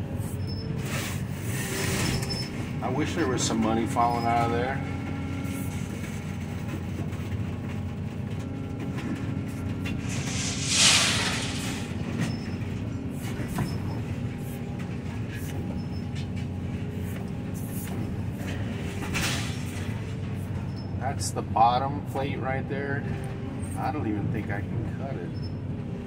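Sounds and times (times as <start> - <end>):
diesel engine and hydraulics: 0.0 - 26.0
harsh rush of shearing noise: 10.0 - 12.2.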